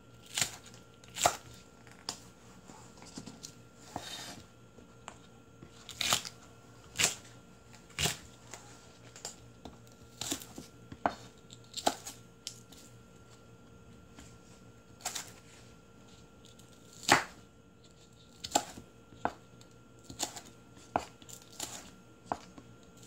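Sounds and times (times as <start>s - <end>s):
knife chopping on wooden board: 17.0s - 17.4s, 18.4s - 19.4s, 20.1s - 22.6s.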